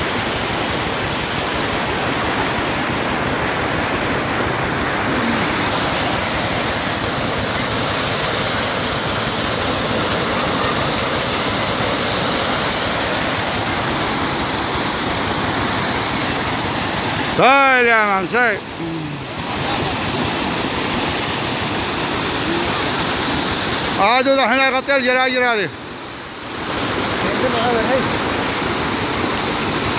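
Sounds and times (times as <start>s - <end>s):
water rushing: 0.0s - 29.9s.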